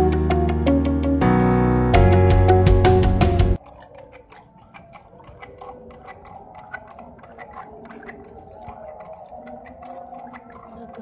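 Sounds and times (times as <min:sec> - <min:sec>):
metallic clicking of hand pump: 0:03.6 - 0:11.0
water trickling: 0:03.6 - 0:11.0.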